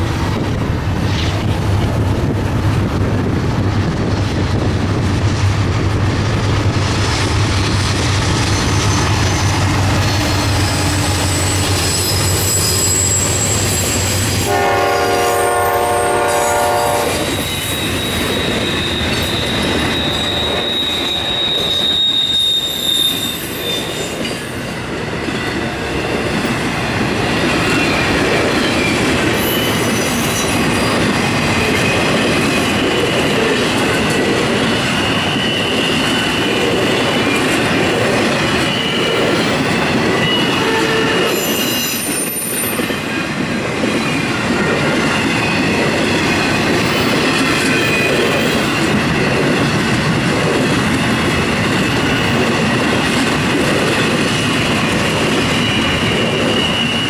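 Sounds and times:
freight cars rumbling and rattling: 0:00.0 - 0:14.5
diesel locomotive rumble: 0:00.0 - 0:22.6
high-pitched wheel squeal: 0:08.4 - 0:14.5, 0:16.3 - 0:24.4, 0:27.8 - 0:31.0, 0:40.1 - 0:43.2, 0:55.4 - 0:57.0
train horn: 0:14.4 - 0:17.4, 0:40.3 - 0:41.6.

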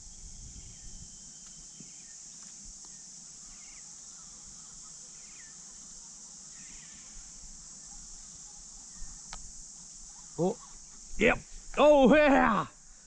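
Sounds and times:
faint bird chirps: 0:00.0 - 0:09.4
high-pitched insect drone: 0:00.0 - 0:13.0.

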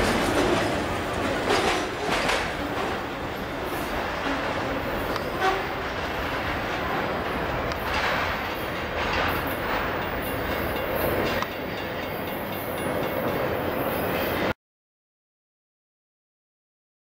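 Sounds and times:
train wheels clacking on rail joints: 0:00.0 - 0:14.5.

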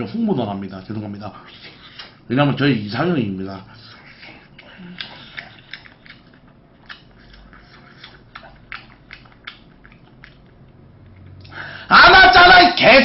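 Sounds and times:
person chewing food: 0:00.8 - 0:02.3, 0:03.8 - 0:11.6.

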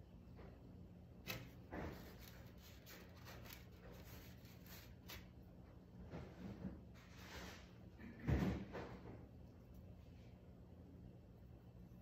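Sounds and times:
low steady hum: 0:00.0 - 0:12.0
light scrapes: 0:06.2 - 0:07.8.

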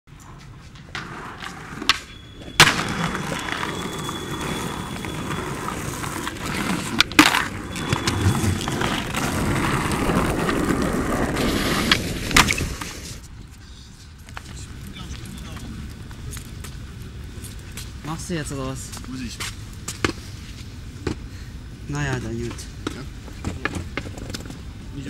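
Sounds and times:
skateboard wheels rolling on pavement: 0:00.1 - 0:25.0
skateboard clacking on ground: 0:00.2 - 0:13.3, 0:22.0 - 0:24.7.

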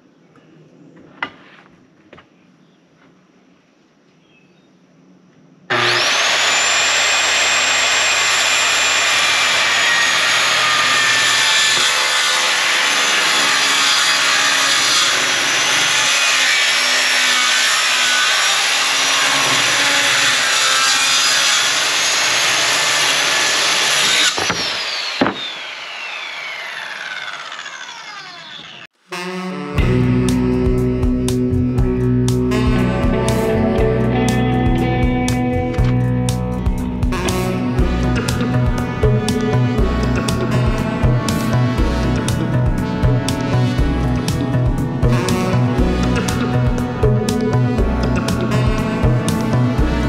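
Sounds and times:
saw blade spinning down: 0:05.7 - 0:28.9
circular saw cutting plywood: 0:05.7 - 0:29.4, 0:37.2 - 0:50.0.

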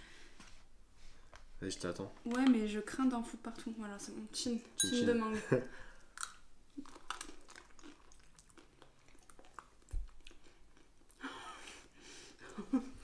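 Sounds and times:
quiet chewing: 0:05.9 - 0:11.9.

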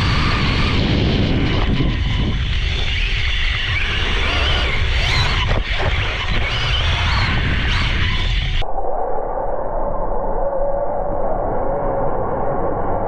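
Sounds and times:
electric motor whine: 0:00.0 - 0:08.6
low rumble: 0:00.0 - 0:13.0.

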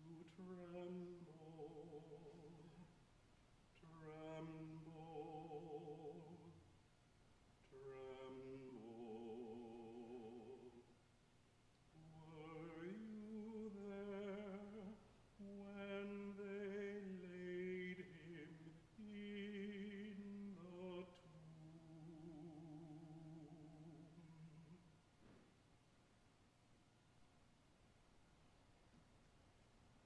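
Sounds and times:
man singing with vibrato: 0:00.0 - 0:03.0, 0:03.7 - 0:06.8, 0:07.6 - 0:11.0, 0:11.9 - 0:25.0.

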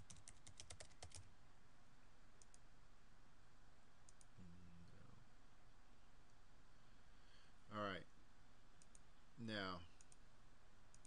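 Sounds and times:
computer keys tapping: 0:00.0 - 0:01.3, 0:04.1 - 0:04.3, 0:08.8 - 0:09.1
soft mouse clicks: 0:02.4 - 0:02.7, 0:04.0 - 0:04.4, 0:06.2 - 0:06.4, 0:08.8 - 0:09.1, 0:09.9 - 0:10.3.

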